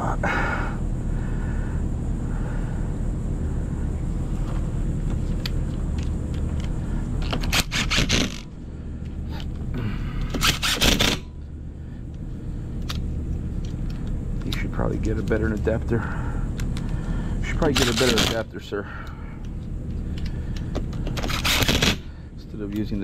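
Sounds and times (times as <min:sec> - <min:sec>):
low rumble: 0:00.0 - 0:22.5
impact driver rattling: 0:07.2 - 0:08.5, 0:10.3 - 0:11.3, 0:21.0 - 0:22.1.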